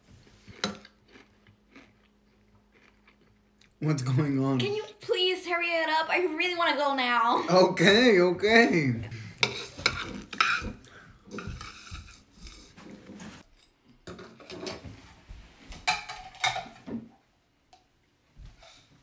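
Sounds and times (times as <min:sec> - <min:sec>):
dishes and cutlery clinking: 0:09.4 - 0:15.0, 0:15.8 - 0:17.0.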